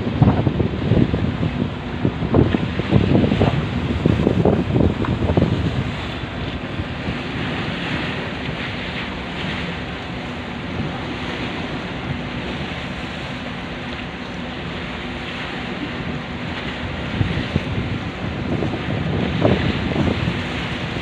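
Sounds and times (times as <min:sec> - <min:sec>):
sea splashing against concrete: 0:00.0 - 0:21.0
wind buffeting microphone: 0:00.0 - 0:21.0.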